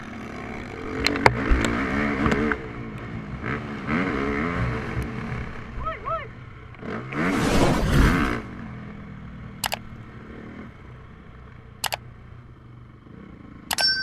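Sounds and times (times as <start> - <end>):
motocross bike engine revving: 0.0 - 5.8, 6.8 - 10.9
wind rush: 7.2 - 8.4
mouse click sound effects: 9.6 - 9.8.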